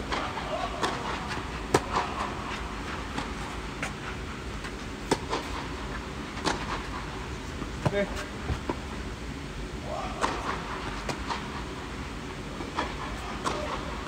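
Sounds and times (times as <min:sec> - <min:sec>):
steady low hum: 0:00.0 - 0:14.0
tennis ball hit by racket: 0:05.0 - 0:05.6, 0:06.4 - 0:06.8, 0:10.2 - 0:11.4.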